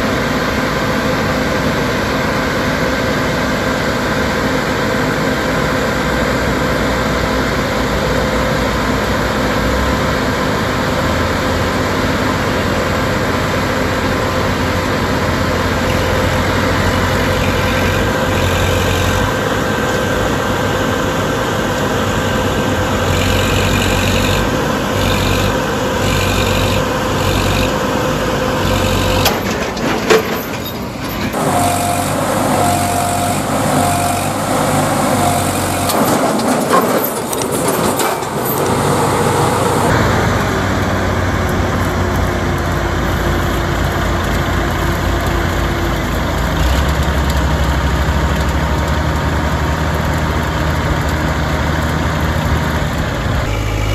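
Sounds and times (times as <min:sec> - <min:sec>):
heavy diesel engines running: 0:00.0 - 0:53.9
short beeps: 0:31.4 - 0:36.2.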